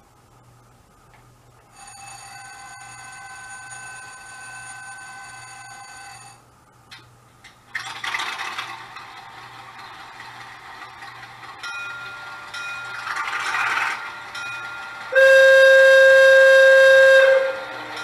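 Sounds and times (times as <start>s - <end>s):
model locomotive horn blast: 15.1s - 17.9s.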